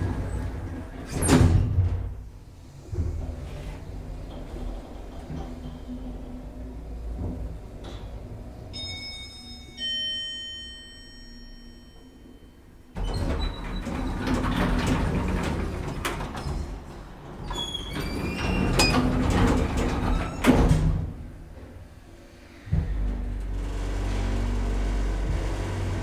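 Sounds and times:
elevator doors sliding open: 0:00.0 - 0:10.9, 0:11.6 - 0:26.0
two-note elevator chime: 0:08.7 - 0:12.9.

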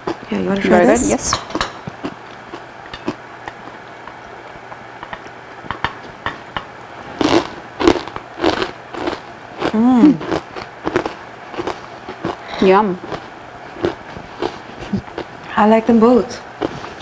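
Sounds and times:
crackers crunching: 0:07.1 - 0:15.5
person humming mmm: 0:09.6 - 0:10.4.

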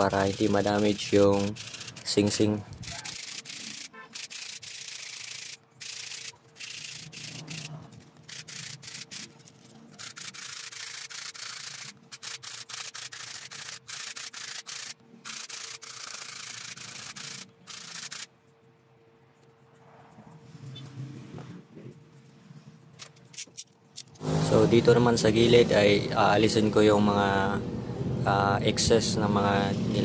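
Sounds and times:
stone rubbing on sandpaper: 0:00.0 - 0:18.3.

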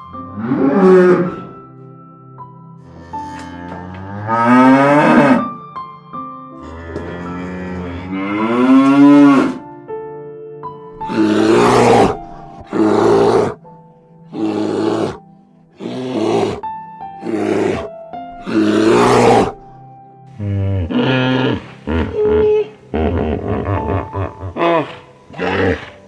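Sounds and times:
background music with held notes: 0:00.0 - 0:26.0
cow lowing: 0:02.8 - 0:05.6, 0:06.6 - 0:09.6, 0:11.0 - 0:13.6, 0:14.3 - 0:19.6, 0:20.3 - 0:26.0.

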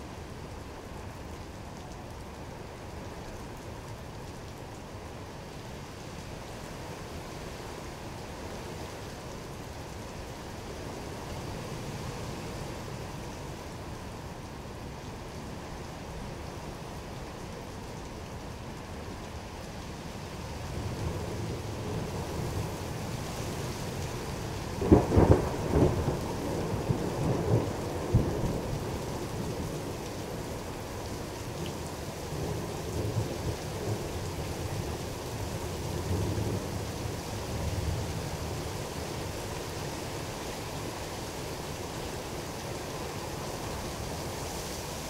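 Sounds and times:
steady rain: 0:00.0 - 0:45.0
thunder rumbling and cracking: 0:24.8 - 0:28.8.

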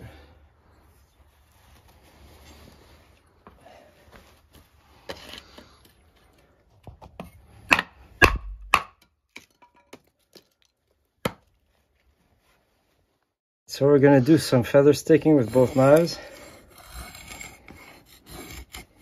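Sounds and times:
baton striking knife spine: 0:07.7 - 0:09.0.

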